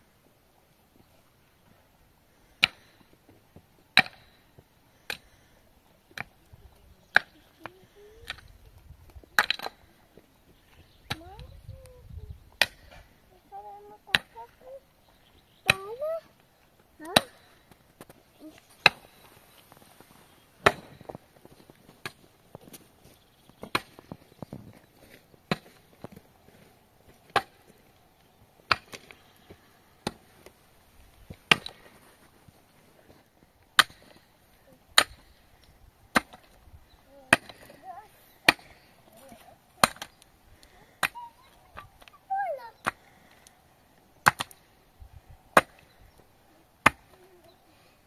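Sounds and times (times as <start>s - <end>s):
axe chopping wood: 4.0s - 4.3s, 17.0s - 17.5s, 20.6s - 21.0s, 23.6s - 24.0s, 25.5s - 25.8s, 27.3s - 27.6s, 28.7s - 29.1s, 31.5s - 31.9s, 33.8s - 34.2s, 35.0s - 35.3s, 36.1s - 36.6s, 37.3s - 37.8s, 38.5s - 38.9s, 39.8s - 40.2s, 44.2s - 44.6s, 45.6s - 45.8s, 46.8s - 47.2s.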